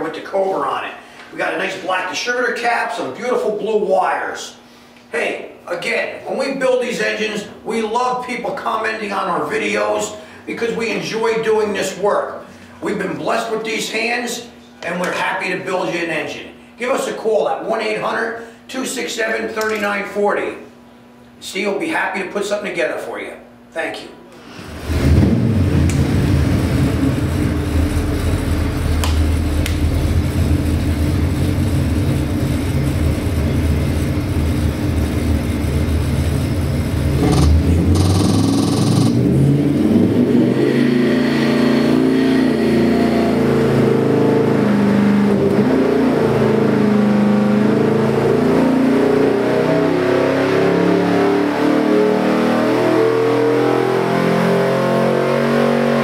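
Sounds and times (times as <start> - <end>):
car engine revving on a dynamometer: 24.6 - 56.0.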